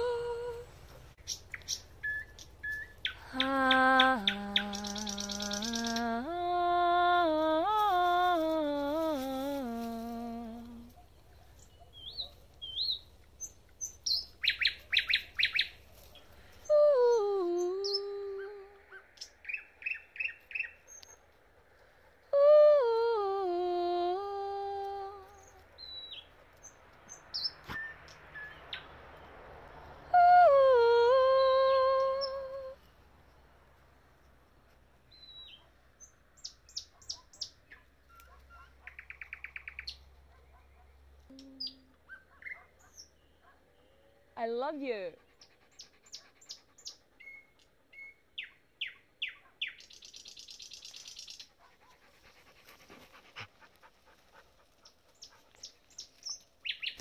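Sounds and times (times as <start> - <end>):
woman singing wordless phrases: 0.0 - 0.8, 3.2 - 11.0, 16.6 - 18.9, 22.3 - 25.6, 30.1 - 32.8, 41.3 - 42.0, 44.4 - 45.2
nightingale singing: 0.0 - 8.6, 10.0 - 21.3, 24.8 - 29.4, 30.2 - 32.8, 35.1 - 43.9, 45.7 - 51.7, 55.1 - 57.0.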